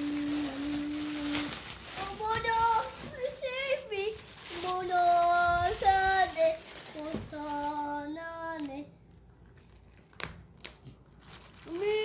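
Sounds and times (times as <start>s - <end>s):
child singing long notes: 0.0s - 8.9s.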